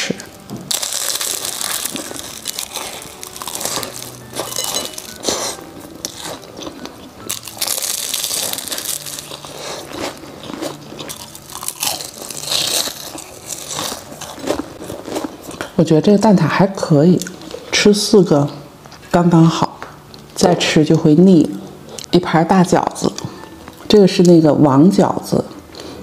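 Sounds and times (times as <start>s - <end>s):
crunchy pastry chewing: 0.7s - 15.8s.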